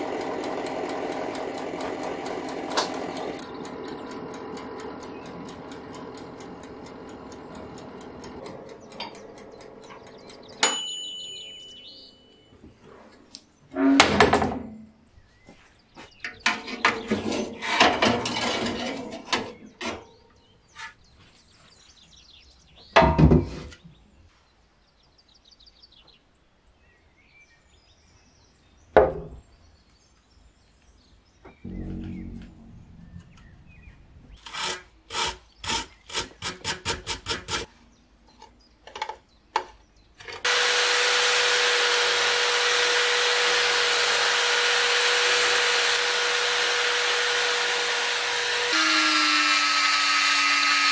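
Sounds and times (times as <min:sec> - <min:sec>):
power tool wire brush whining: 0:00.0 - 0:10.6, 0:34.4 - 0:37.7, 0:40.4 - 0:50.9
rhythmic strokes: 0:00.0 - 0:10.6, 0:31.7 - 0:37.7.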